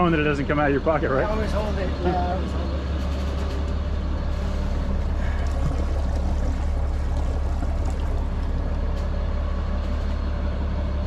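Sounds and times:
boat engines idling: 0.0 - 11.0
water splashing: 4.5 - 9.3.

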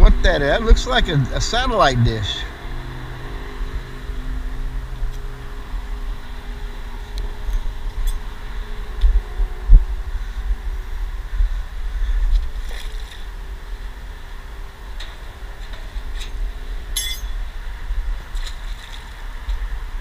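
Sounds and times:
faint engine hum: 0.0 - 20.0
wind buffeting microphone: 3.4 - 15.0
rope and metal hook clicks: 7.5 - 8.2, 17.0 - 17.4.

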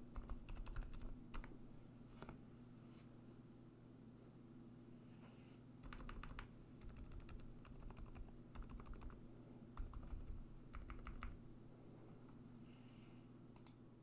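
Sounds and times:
soft mechanical keyboard typing: 0.0 - 1.6, 5.8 - 9.2, 9.8 - 11.4, 13.6 - 13.8.

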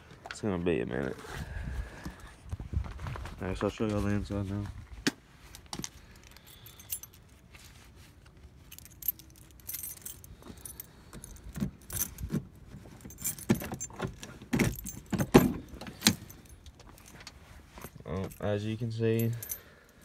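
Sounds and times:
keys jangling: 5.5 - 7.4, 8.6 - 20.0.

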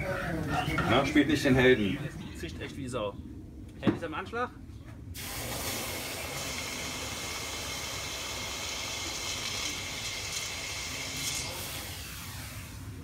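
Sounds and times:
hot charcoal hissing in water: 5.2 - 13.0.

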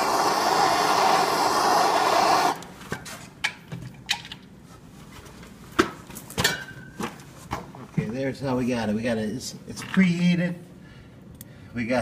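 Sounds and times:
gas torch flame hissing: 0.0 - 2.7.

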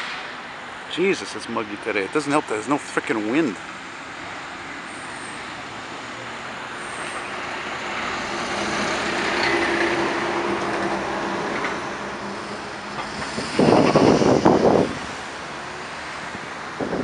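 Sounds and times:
passing car traffic: 0.0 - 17.0
diesel truck driving past: 4.2 - 16.6.

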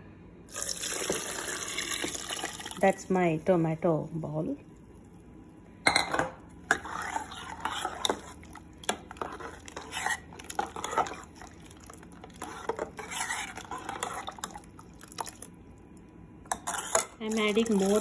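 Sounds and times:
liquid swishing: 6.7 - 15.6.

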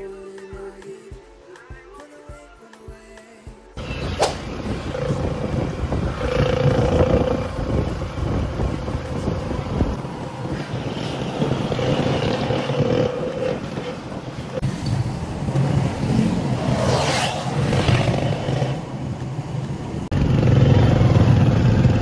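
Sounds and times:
vehicle engine and road noise: 3.8 - 22.0
sharp click: 4.2 - 4.4.

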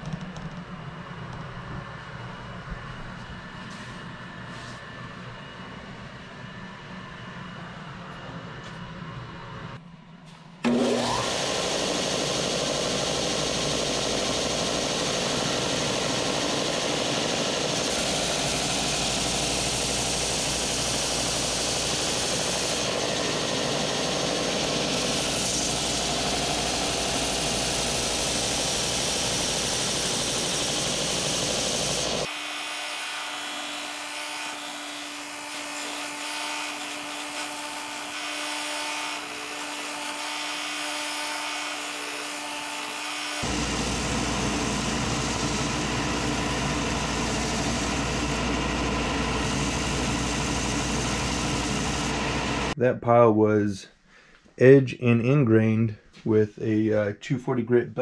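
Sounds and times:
belt sander sanding wood: 10.7 - 52.8.

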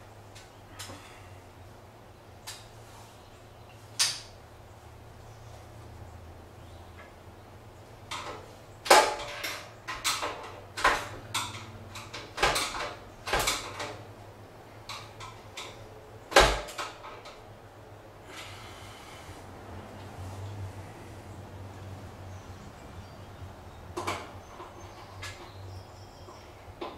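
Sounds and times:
rustle: 0.0 - 7.2.

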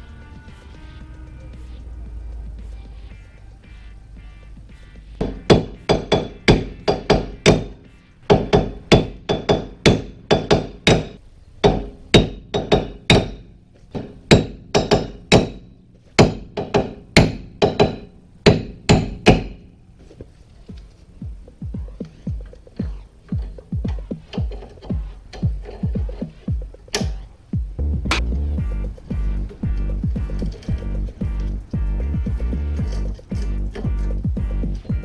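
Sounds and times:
hammer blows on metal: 5.2 - 19.7.

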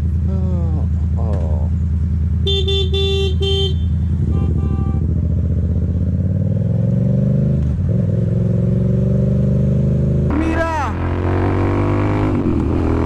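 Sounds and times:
motorcycle engine running: 0.0 - 13.0
vehicle horn beeping: 2.4 - 5.2.

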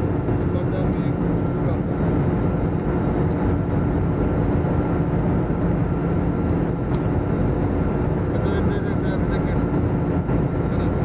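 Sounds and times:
engine drone: 0.0 - 11.0
rush of air in airliner cabin: 0.0 - 11.0.

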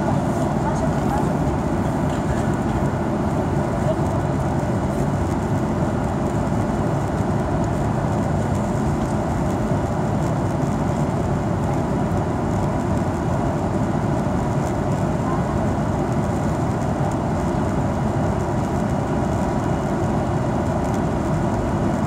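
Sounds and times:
airliner cabin engine rumble: 0.0 - 22.0.

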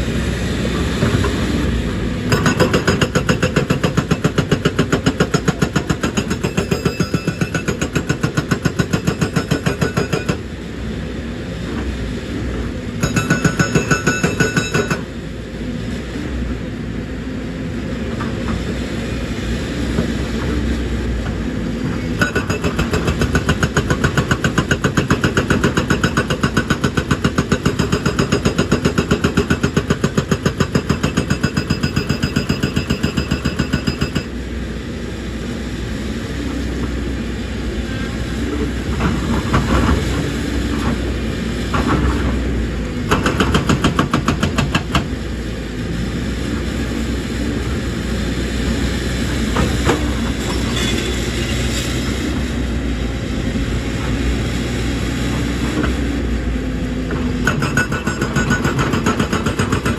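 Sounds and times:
hydraulic rock breaker hammering: 2.3 - 10.5, 13.0 - 15.1, 21.3 - 34.4, 43.0 - 45.2, 57.1 - 59.9
diesel engine running: 34.3 - 59.9.

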